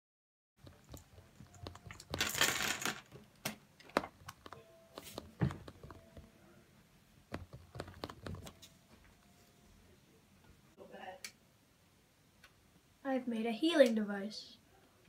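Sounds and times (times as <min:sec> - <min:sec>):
fingers tapping touchscreen: 0:00.6 - 0:02.2, 0:04.0 - 0:06.3, 0:07.3 - 0:08.7.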